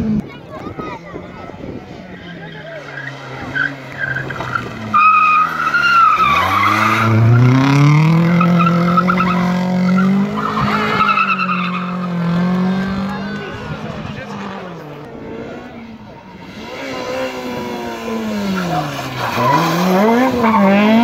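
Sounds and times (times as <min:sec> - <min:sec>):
rally car engine revving: 0:01.6 - 0:21.0
tyre squeal: 0:02.9 - 0:07.4.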